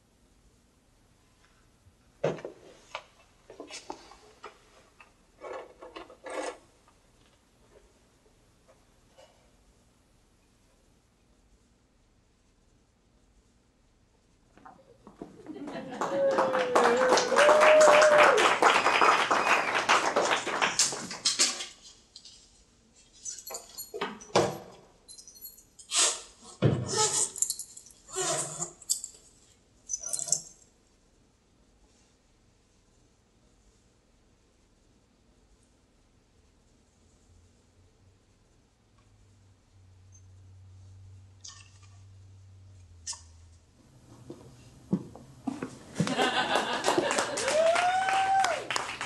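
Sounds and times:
audience clapping: 15.5s - 21.4s, 46.0s - 49.0s.

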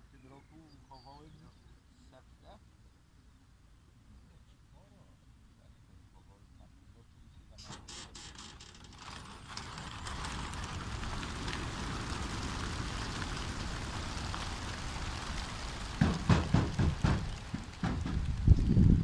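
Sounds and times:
pigeon wingbeats clattering: 7.6s - 19.0s
loud thumps: 16.0s - 18.6s.

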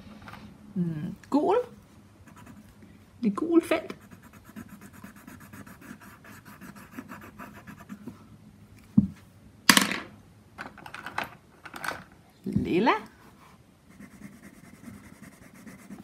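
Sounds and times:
pencil scratching on paper: 2.3s - 2.7s, 3.9s - 8.2s, 13.9s - 16.0s.

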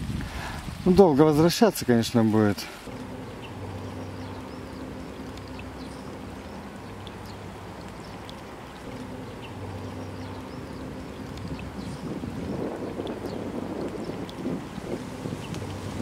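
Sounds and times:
low steady hum: 2.6s - 16.0s
high bird chirps: 2.9s - 8.3s.

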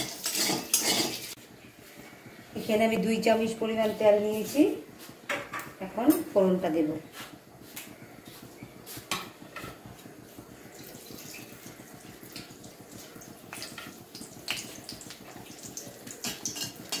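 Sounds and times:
chillies popping in oil: 0.0s - 1.4s, 7.5s - 17.0s
hot oil sizzling and popping: 0.0s - 17.0s.

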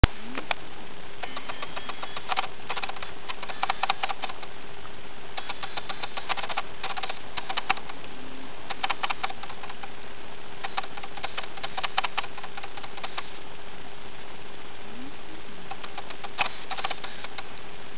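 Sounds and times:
faint hum: 0.0s - 17.9s
meerkats making scratchy clicks: 1.2s - 4.5s, 5.4s - 8.1s, 8.7s - 10.0s, 10.6s - 13.4s, 15.7s - 17.5s.

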